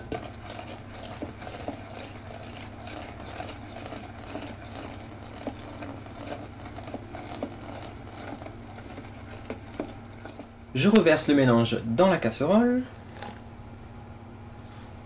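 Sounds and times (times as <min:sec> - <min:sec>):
whisk scraping metal bowl: 0:00.0 - 0:10.9
low steady hum: 0:00.0 - 0:15.0.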